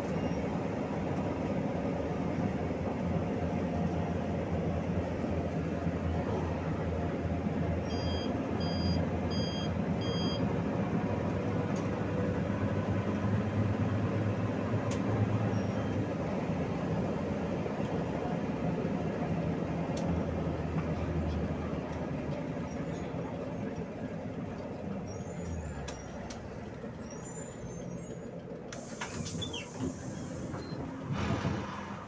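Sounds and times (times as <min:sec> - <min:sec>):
bus engine and road noise: 0:00.0 - 0:32.0.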